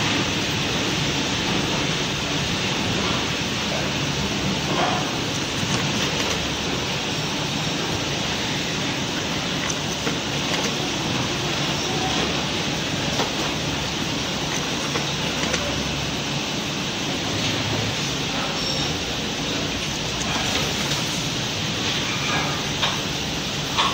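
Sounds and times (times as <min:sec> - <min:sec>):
factory machinery hiss and rumble: 0:00.0 - 0:23.9.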